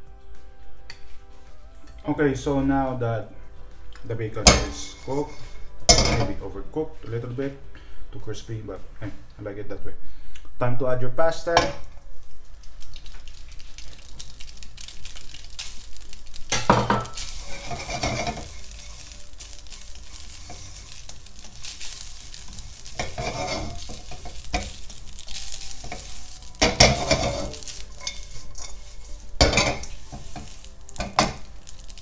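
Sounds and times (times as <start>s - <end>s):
food sizzling in a wok: 4.4s - 7.1s, 11.6s - 32.0s
spatula scraping a pan: 4.5s - 6.4s, 15.3s - 32.0s
pasta tossed in a wok: 12.2s - 32.0s.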